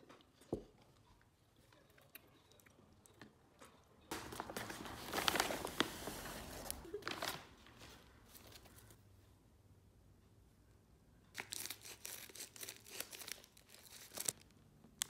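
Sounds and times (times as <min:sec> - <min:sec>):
envelope rustling and crinkling: 0:04.1 - 0:09.0, 0:11.4 - 0:14.5
fabric rustling: 0:04.1 - 0:09.0.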